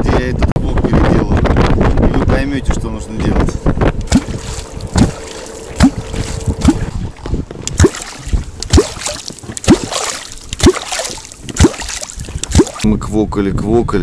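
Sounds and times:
hollow gulping pop in water: 0:03.2 - 0:12.9
water splash: 0:04.1 - 0:12.9.

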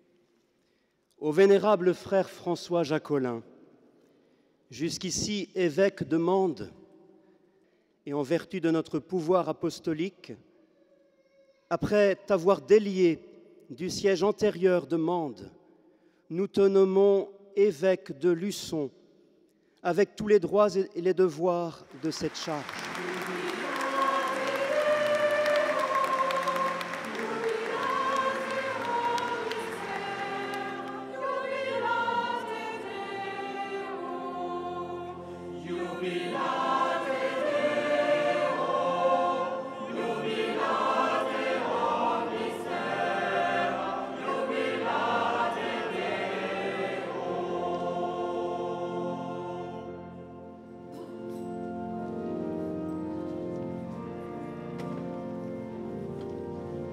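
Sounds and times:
applause: 0:21.8 - 0:31.1
choir singing sustained chords: 0:22.8 - 0:53.2.

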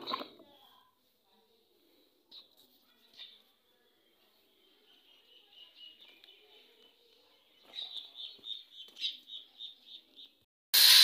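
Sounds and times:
bird chirping: 0:03.1 - 0:10.4
loud steady hiss: 0:10.8 - 0:11.0.

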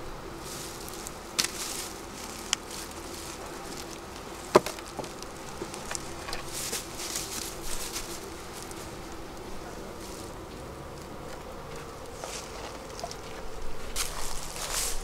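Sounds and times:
honeybees buzzing: 0:00.0 - 0:15.0
clicks and rustles: 0:01.4 - 0:08.8.

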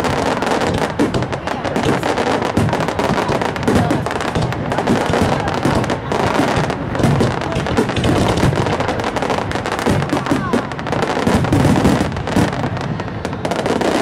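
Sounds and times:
fireworks bursting: 0:00.0 - 0:14.0.

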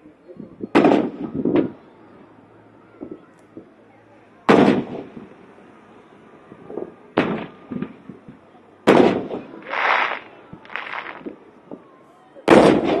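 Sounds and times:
small firework bang: 0:00.7 - 0:01.8, 0:04.5 - 0:05.2, 0:06.8 - 0:08.1, 0:08.9 - 0:11.8, 0:12.5 - 0:13.0
firework shells booming: 0:00.8 - 0:01.7, 0:04.5 - 0:05.3, 0:06.8 - 0:11.4, 0:12.5 - 0:13.0.

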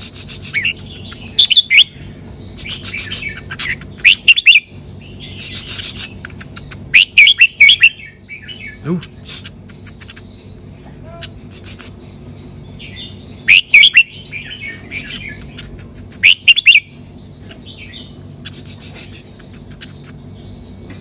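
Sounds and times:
bird singing warbled phrases: 0:00.0 - 0:21.0
soft bird chirps: 0:00.0 - 0:21.0.

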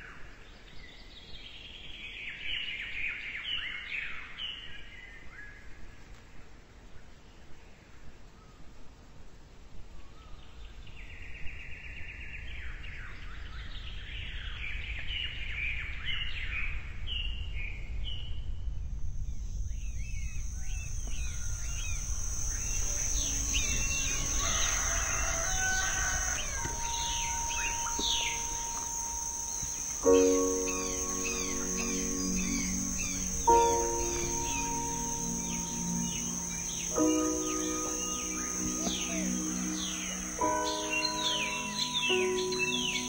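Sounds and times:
high insect drone: 0:18.0 - 0:43.0
small birds chirping: 0:19.7 - 0:43.0
rooster crowing: 0:20.6 - 0:43.0
loud musical tone: 0:22.7 - 0:43.0.

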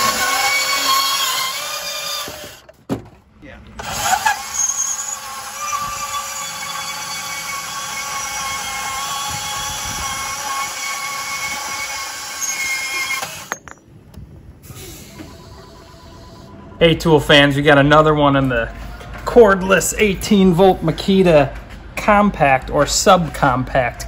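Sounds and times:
band saw cutting pipe: 0:00.0 - 0:02.6, 0:03.8 - 0:13.6.

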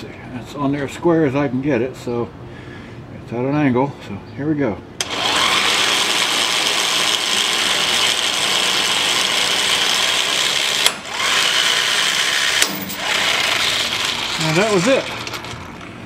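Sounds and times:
electric impact wrench hammering: 0:05.0 - 0:16.0.

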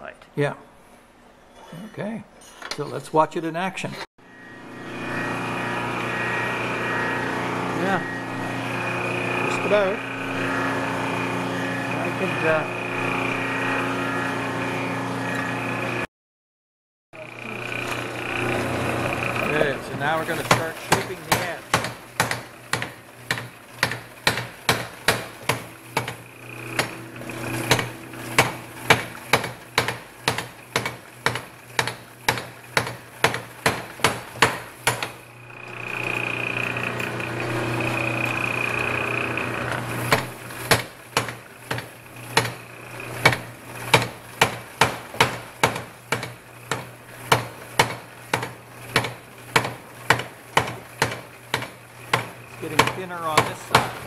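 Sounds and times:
low machine hum: 0:04.2 - 0:16.1, 0:17.2 - 0:32.2, 0:35.2 - 0:45.4
power hammer striking hot steel: 0:17.8 - 0:35.3, 0:35.9 - 0:54.0.

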